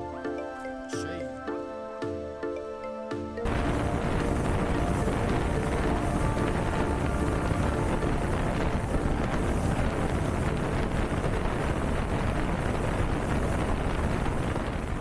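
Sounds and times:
wind buffeting microphone: 3.4s - 15.0s.

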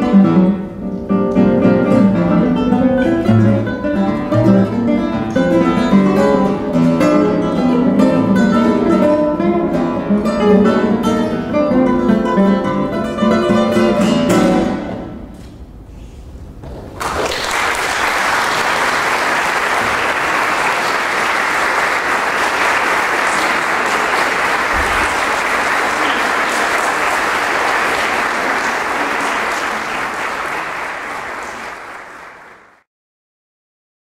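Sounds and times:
audience applauding: 16.8s - 32.8s.

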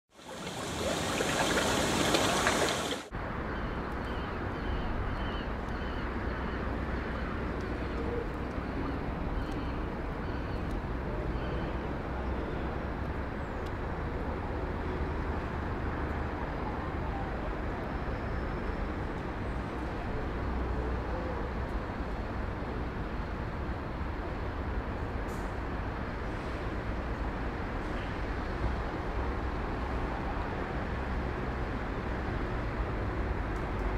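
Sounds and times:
low traffic rumble: 0.1s - 33.9s
street noise: 0.1s - 33.9s.

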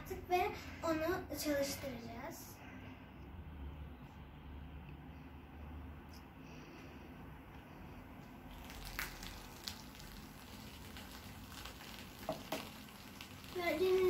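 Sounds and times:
mixture fizzing faintly: 7.7s - 14.0s
liquid pouring: 8.4s - 14.0s.

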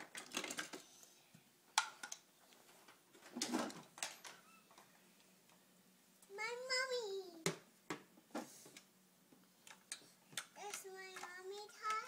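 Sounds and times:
plastic bricks rattling clatter: 0.0s - 0.8s.

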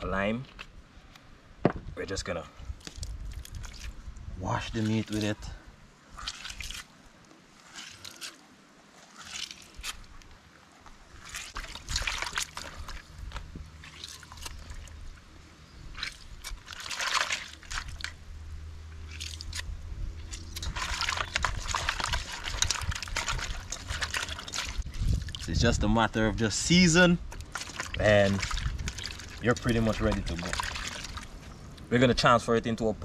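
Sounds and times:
wet sloshing and squelching: 2.7s - 25.8s, 26.4s - 31.6s.

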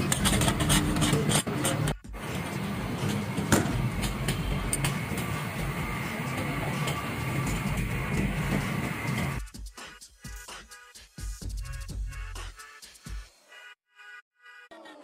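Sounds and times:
gas burner noise: 0.0s - 9.5s.

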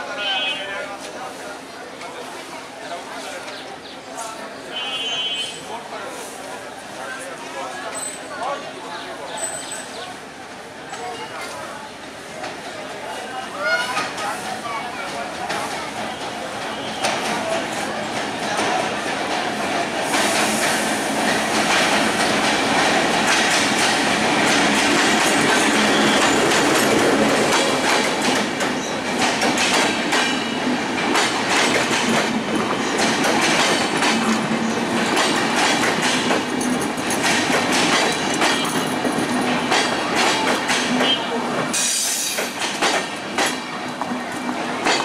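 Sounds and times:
train wheels clacking: 13.8s - 45.0s.

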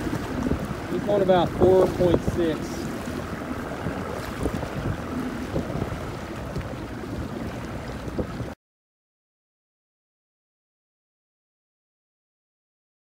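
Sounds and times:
water sloshing: 0.0s - 8.6s
wind buffeting microphone: 0.0s - 8.6s.

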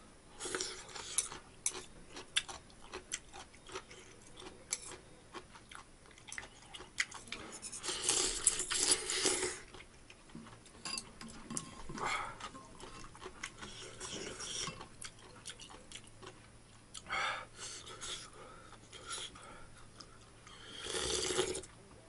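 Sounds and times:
slurping noodle broth: 7.7s - 9.6s, 20.5s - 21.7s.

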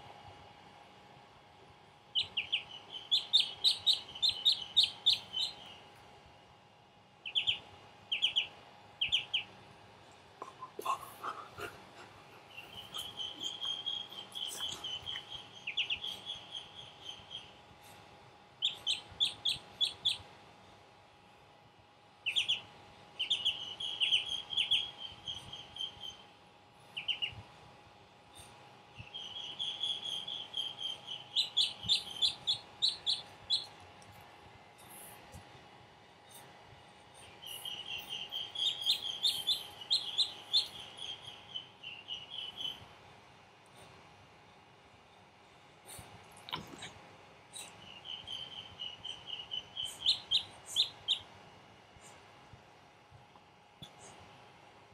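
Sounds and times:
duckling peeping: 2.1s - 6.0s, 7.2s - 9.7s, 10.4s - 17.6s, 18.6s - 20.3s, 22.2s - 27.5s, 28.4s - 33.9s, 37.2s - 42.9s, 47.5s - 51.3s.

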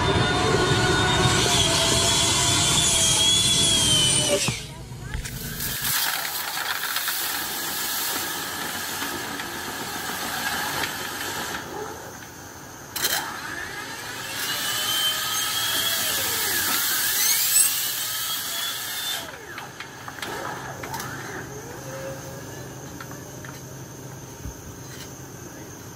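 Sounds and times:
air-powered cleaning tool whirring: 0.0s - 11.8s, 12.8s - 22.1s
compressed air hissing through duct: 5.3s - 11.6s.

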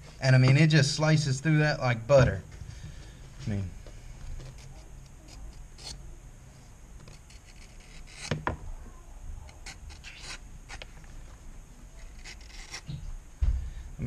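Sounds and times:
knife cutting leather: 4.3s - 6.0s, 7.0s - 8.4s, 9.5s - 10.9s, 12.0s - 13.0s.

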